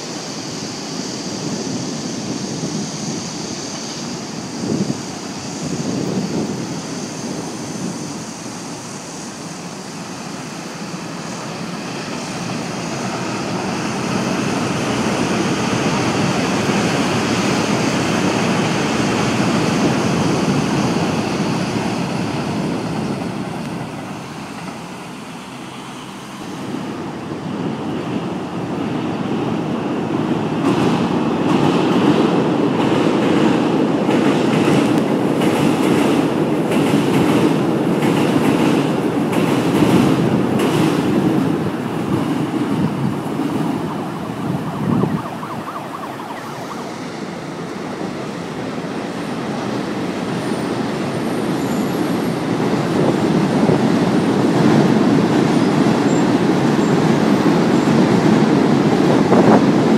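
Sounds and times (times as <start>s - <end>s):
electric train rumble: 0.0s - 59.9s
train wheels clacking on rail joints: 30.5s - 43.8s.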